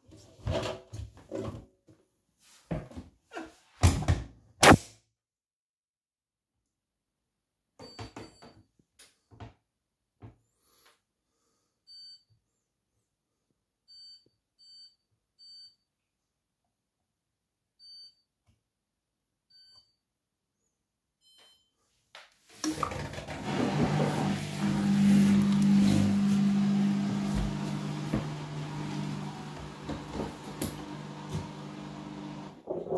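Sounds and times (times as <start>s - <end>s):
washing machine water rushing: 22.6s - 32.6s
washing machine low hum: 22.7s - 32.6s.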